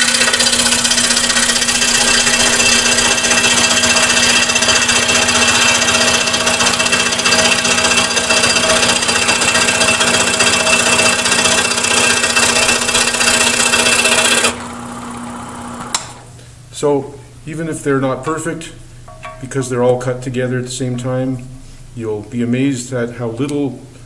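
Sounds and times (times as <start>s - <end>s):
scroll saw cutting wood: 0.0s - 16.1s
motor hum: 0.0s - 16.5s.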